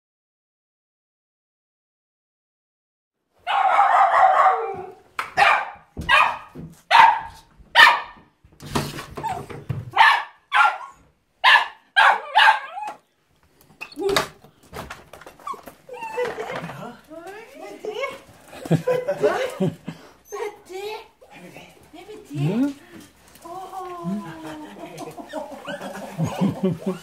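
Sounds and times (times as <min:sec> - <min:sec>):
dog barking: 0:03.4 - 0:08.3, 0:09.9 - 0:13.0.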